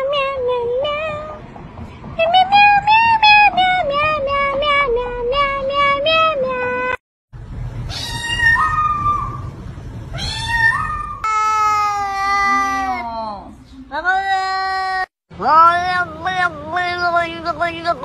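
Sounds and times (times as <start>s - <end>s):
cat meowing: 7.9s - 9.3s, 10.1s - 13.0s
kitten meowing: 7.9s - 9.3s, 10.2s - 11.7s.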